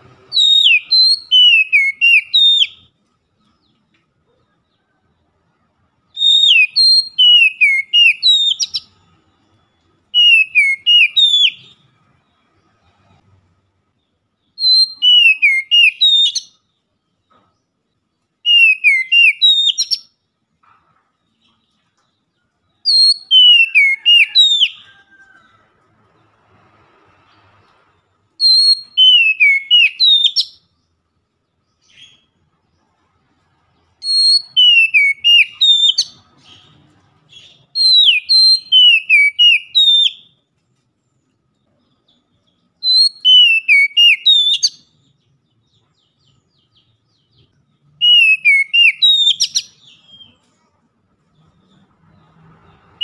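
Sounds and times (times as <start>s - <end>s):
bird singing whistled phrases: 0.3s - 2.9s, 6.1s - 8.9s, 10.0s - 11.8s, 14.5s - 16.6s, 18.4s - 20.2s, 22.8s - 25.1s, 28.4s - 30.7s, 34.0s - 36.7s, 37.4s - 40.4s, 42.8s - 44.9s, 48.0s - 50.4s.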